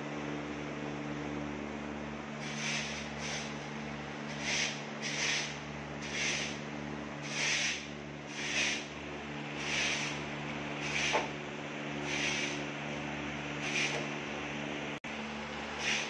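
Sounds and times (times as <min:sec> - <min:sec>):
steady low hum: 0:00.0 - 0:16.0
template scraping wet plaster: 0:04.3 - 0:06.6, 0:07.2 - 0:08.8, 0:10.8 - 0:11.3.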